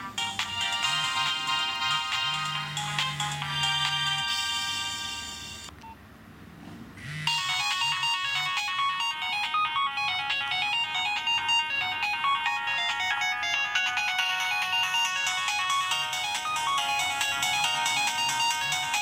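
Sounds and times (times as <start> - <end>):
phone ringtone: 0.0 - 5.7, 7.0 - 19.0.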